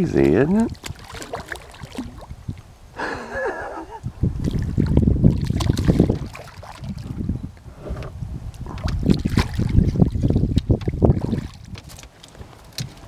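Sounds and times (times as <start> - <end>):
fish thrashing and splashing: 0.3 - 2.5, 4.4 - 7.1, 8.6 - 13.0.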